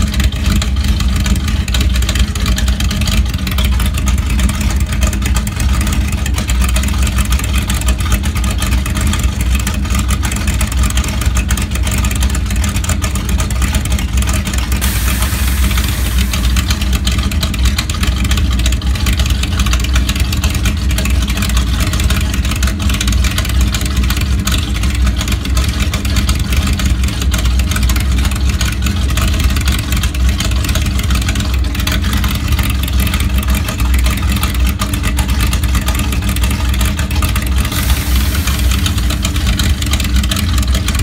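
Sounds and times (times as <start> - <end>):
car engine idling: 0.3 - 20.0, 36.6 - 41.0.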